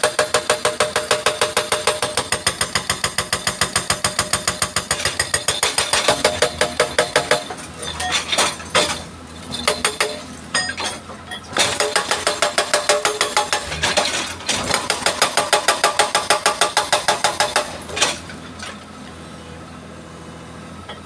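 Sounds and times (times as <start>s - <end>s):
hydraulic breaker hammering rock: 0.0s - 18.4s.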